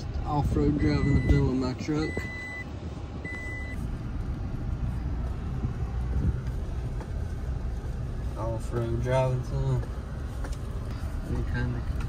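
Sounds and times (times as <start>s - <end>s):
engine and tyre rumble: 0.0s - 12.0s.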